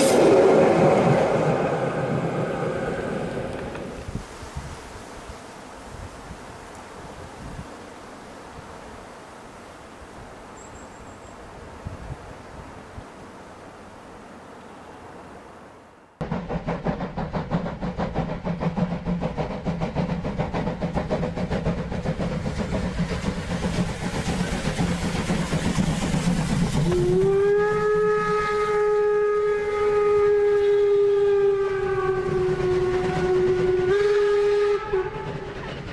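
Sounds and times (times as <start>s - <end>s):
train running rhythmically: 16.2s - 28.4s, 31.9s - 35.9s
train whistle long note: 26.8s - 35.5s.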